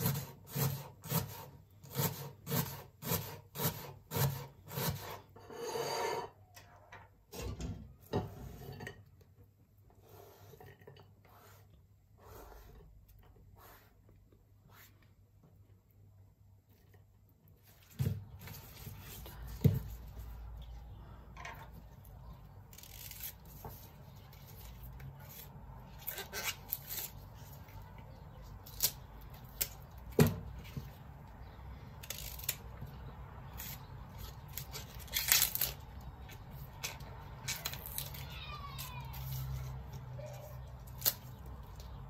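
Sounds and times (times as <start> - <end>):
leaves tearing and crackling: 22.7 - 23.6, 32.0 - 32.7, 33.5 - 36.3, 37.4 - 39.7, 40.8 - 41.5.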